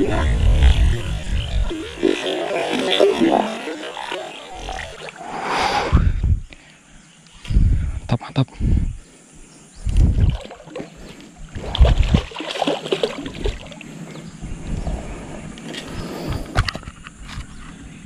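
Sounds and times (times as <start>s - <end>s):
heavy low thumps: 5.9s - 6.5s
water splashing and sloshing: 9.9s - 14.8s.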